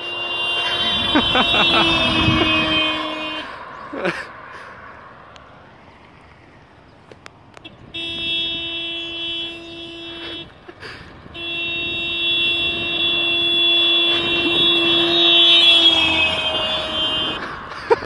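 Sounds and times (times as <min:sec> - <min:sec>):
car horn blasts: 0:00.0 - 0:03.7, 0:07.6 - 0:10.6, 0:11.2 - 0:17.9
passing car tyre and engine noise: 0:00.1 - 0:09.7, 0:10.5 - 0:18.0.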